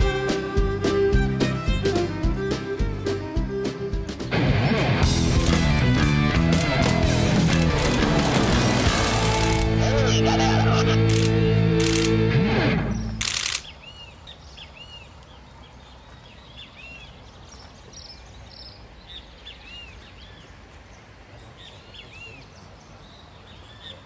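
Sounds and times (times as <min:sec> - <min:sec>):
steady outdoor hiss: 0:00.0 - 0:24.0
music stinger: 0:04.0 - 0:12.9
bird chirps: 0:12.9 - 0:20.5.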